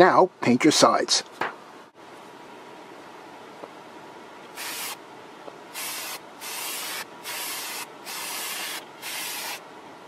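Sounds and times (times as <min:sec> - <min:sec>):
spray can hissing bursts: 0:04.6 - 0:05.0, 0:05.8 - 0:09.6.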